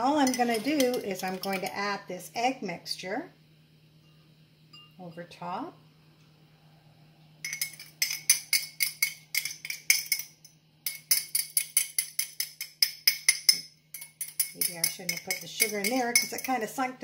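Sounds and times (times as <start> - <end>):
fork clinking against glass cup: 7.5 - 16.6.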